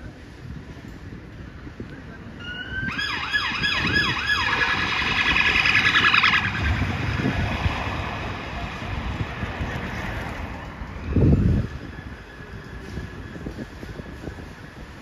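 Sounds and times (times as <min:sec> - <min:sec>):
low vehicle rumble: 0:00.0 - 0:15.0
emergency vehicle siren: 0:02.4 - 0:08.7.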